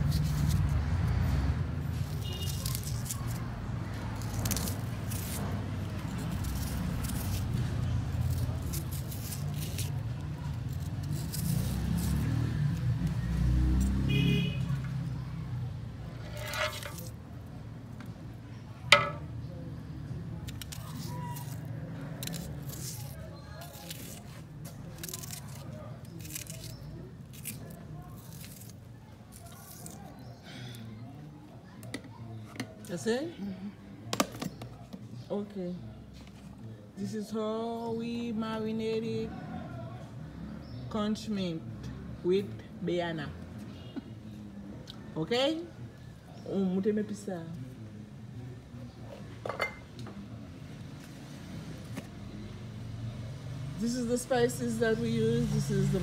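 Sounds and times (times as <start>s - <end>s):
knife slicing onion: 16.2s - 17.2s, 20.4s - 30.2s.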